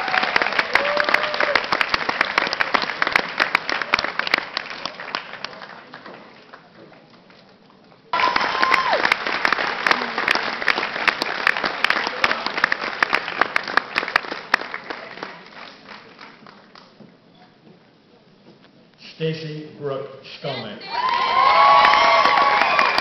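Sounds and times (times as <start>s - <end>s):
audience applause: 0.0s - 7.1s, 8.1s - 16.9s, 20.9s - 23.0s.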